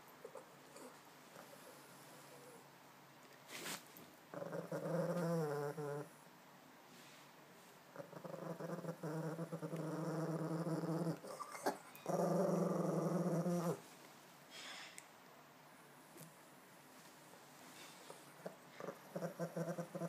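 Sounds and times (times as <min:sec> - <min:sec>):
dog growling: 0:04.3 - 0:06.2, 0:07.9 - 0:13.8, 0:18.4 - 0:20.0.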